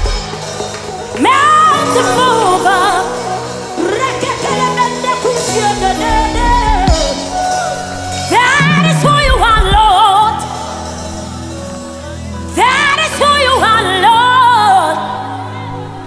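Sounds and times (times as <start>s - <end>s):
person singing: 1.2s - 11.0s
keyboard and bass chords: 5.5s - 11.9s.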